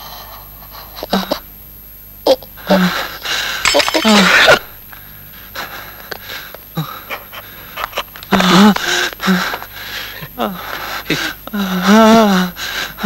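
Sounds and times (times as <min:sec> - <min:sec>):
person breathing hard: 0:08.8 - 0:11.4.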